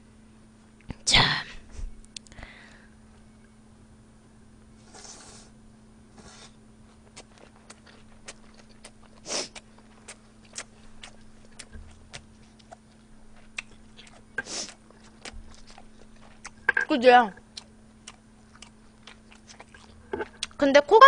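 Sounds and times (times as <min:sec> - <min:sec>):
faint steady hum: 0:00.0 - 0:21.0
puffs of breath: 0:02.3 - 0:03.0
wet chewing clicks: 0:06.9 - 0:20.6.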